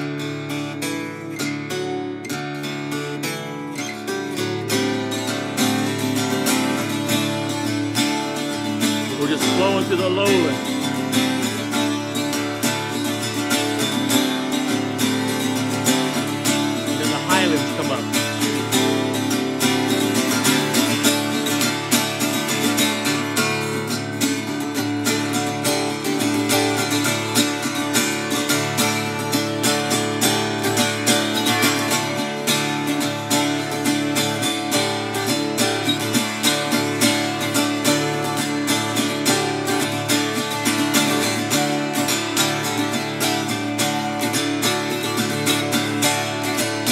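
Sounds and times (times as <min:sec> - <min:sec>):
acoustic guitar strumming: 0:00.0 - 0:46.9.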